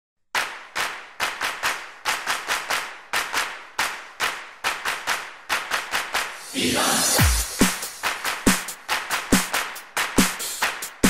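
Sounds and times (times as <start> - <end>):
rhythmic hand claps: 0.3 - 6.4, 7.2 - 11.0
rushing swell: 6.4 - 8.0.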